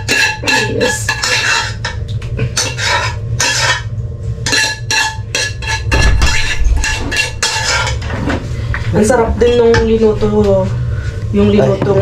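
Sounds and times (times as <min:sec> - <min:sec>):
spoon scraping a cooking pot: 0:00.0 - 0:08.2.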